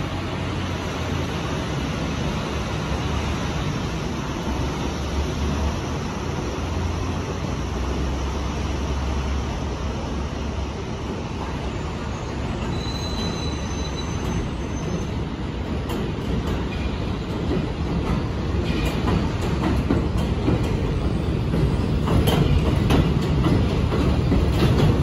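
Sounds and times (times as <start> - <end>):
train wheels rumbling on rails: 0.0 - 25.0
high-pitched wheel squeal: 12.1 - 15.1.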